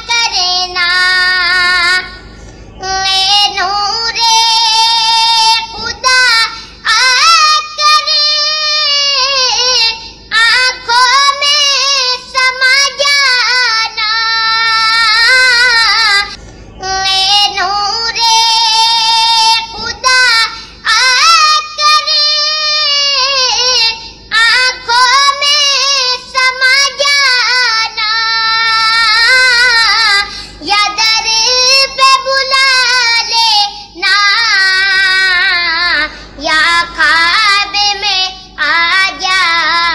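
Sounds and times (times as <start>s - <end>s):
boy singing unaccompanied: 0.0s - 2.2s, 2.8s - 39.9s
short breaths: 2.2s - 2.8s, 30.2s - 30.6s, 36.1s - 36.4s.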